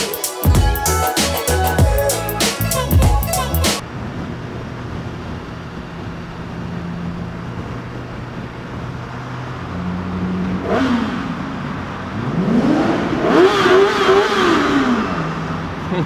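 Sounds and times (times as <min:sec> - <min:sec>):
motorcycle engine revving: 0:04.0 - 0:16.0.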